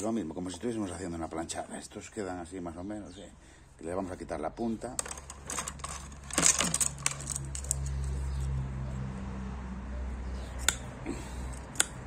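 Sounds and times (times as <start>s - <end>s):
skewers and cutters rattling in tray: 5.0s - 8.0s
cutter snipping skewer: 10.6s - 10.9s, 11.5s - 12.0s.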